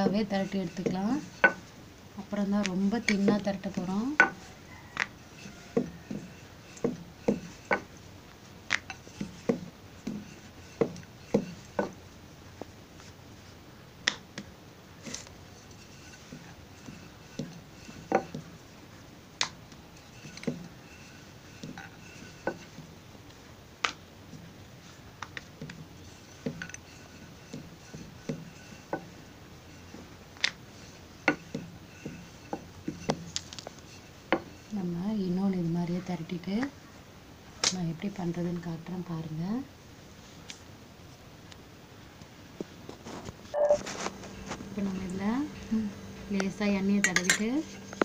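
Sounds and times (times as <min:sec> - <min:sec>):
rolling pin knocking on stone: 0:02.6 - 0:04.4, 0:05.0 - 0:07.9, 0:08.7 - 0:12.0, 0:16.2 - 0:18.6, 0:20.2 - 0:20.8, 0:26.4 - 0:29.2.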